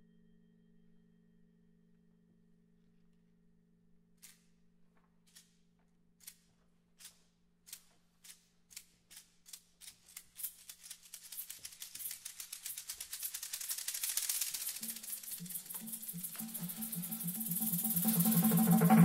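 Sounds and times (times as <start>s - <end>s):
hand percussion clicking rattle: 7.0s - 19.0s.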